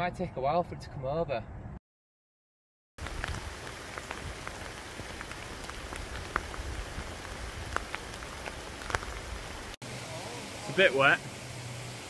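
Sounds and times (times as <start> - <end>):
raindrops ticking: 3.0 - 9.8
rain hissing: 3.0 - 12.0.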